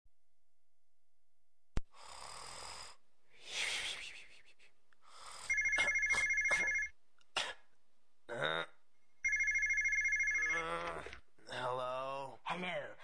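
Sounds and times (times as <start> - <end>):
breathy snoring sounds: 1.9 - 3.0, 5.0 - 5.6
telephone ringing two-tone trill: 5.5 - 6.9, 9.2 - 10.6.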